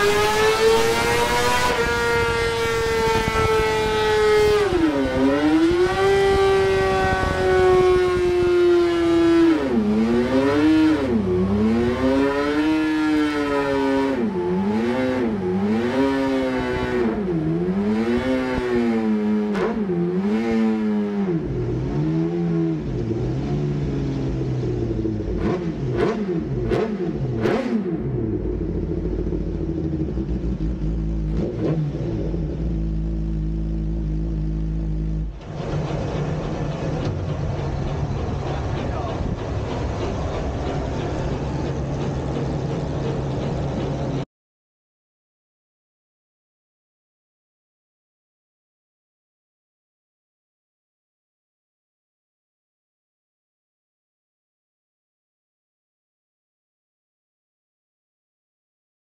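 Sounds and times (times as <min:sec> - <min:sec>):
motorcycle engine revving: 0:00.0 - 0:44.3
exhaust cracks: 0:21.3 - 0:44.2.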